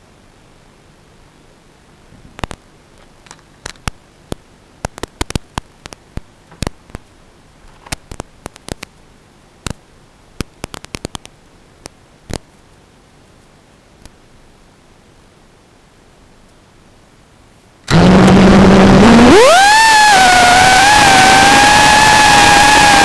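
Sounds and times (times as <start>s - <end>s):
sharp crackles and pops: 2.4s - 7.1s, 7.8s - 9.0s, 9.6s - 9.8s, 10.4s - 12.8s.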